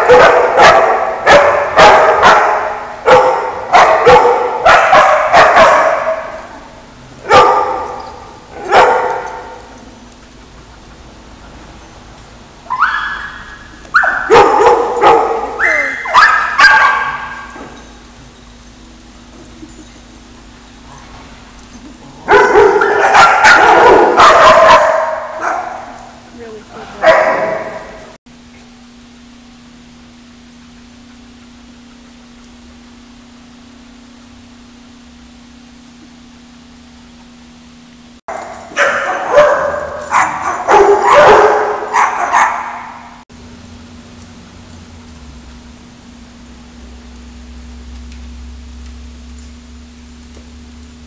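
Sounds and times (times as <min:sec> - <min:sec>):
dogs barking and yipping: 0:00.0 - 0:11.9, 0:12.6 - 0:28.2, 0:38.3 - 0:43.2
faint steady hum: 0:00.0 - 0:51.0.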